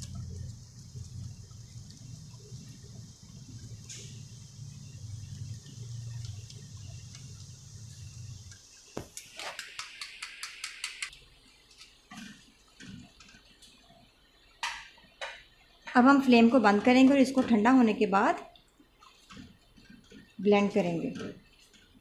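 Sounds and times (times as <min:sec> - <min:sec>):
low hum with faint hiss: 0:00.0 - 0:09.6.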